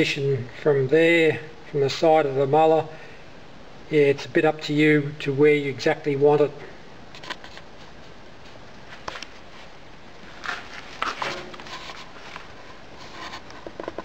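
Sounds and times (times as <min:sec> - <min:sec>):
low background hiss: 0:00.0 - 0:14.0
soft footsteps: 0:07.8 - 0:14.0.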